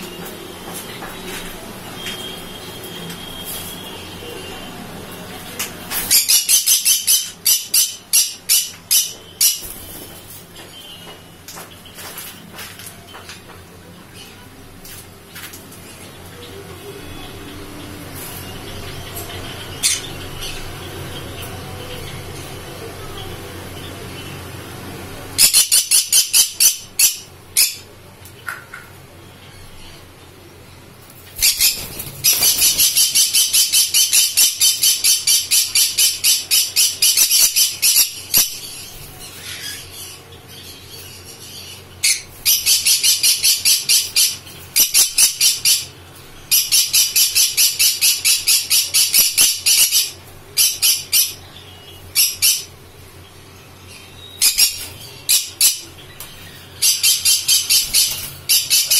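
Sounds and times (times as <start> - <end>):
parrot squawking: 25.4 - 27.9, 46.5 - 51.4, 54.4 - 55.9, 56.8 - 58.9.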